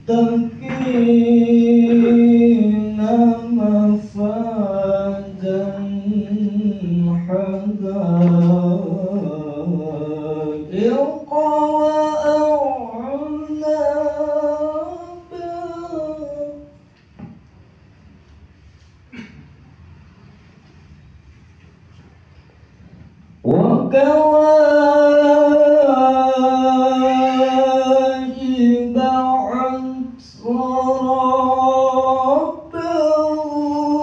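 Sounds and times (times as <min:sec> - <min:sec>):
man reciting melodically into microphone: 0:00.0 - 0:16.9, 0:23.4 - 0:34.0.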